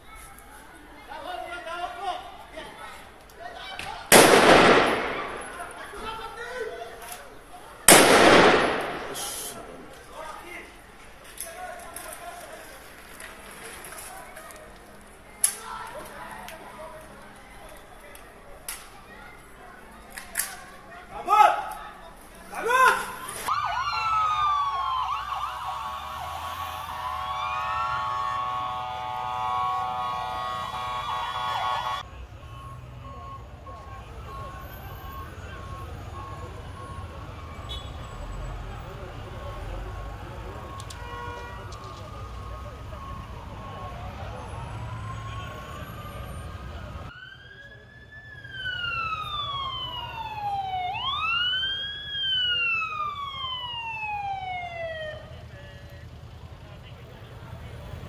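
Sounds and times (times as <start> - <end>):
low traffic rumble: 0.0 - 58.0
street noise: 0.0 - 58.0
emergency sirens wailing: 4.4 - 6.1, 22.6 - 58.0.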